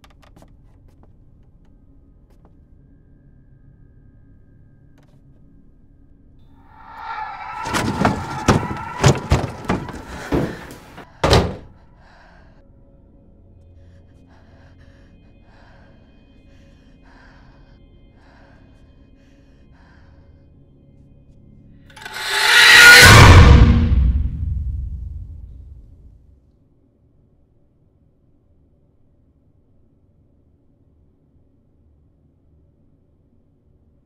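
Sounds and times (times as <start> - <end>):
heavy thuds and bangs: 6.8 - 11.7, 22.0 - 26.2
faint steady drone: 11.7 - 21.8.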